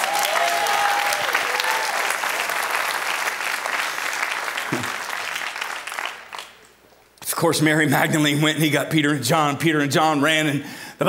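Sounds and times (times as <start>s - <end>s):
congregation applauding: 0.0s - 6.8s.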